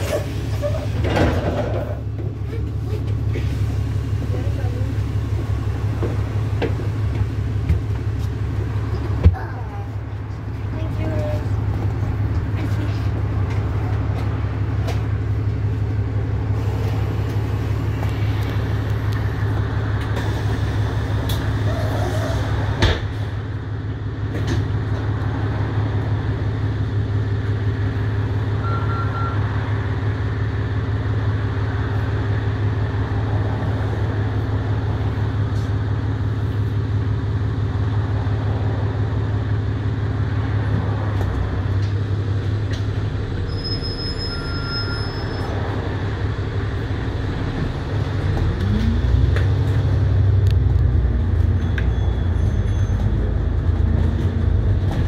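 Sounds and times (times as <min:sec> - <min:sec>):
bus engine idling: 0:00.0 - 0:55.0.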